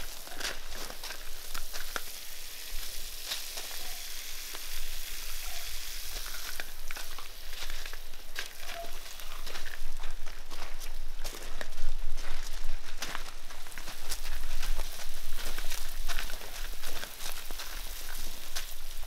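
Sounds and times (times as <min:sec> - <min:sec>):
garden hose spraying water: 0:00.0 - 0:10.0, 0:13.8 - 0:19.0.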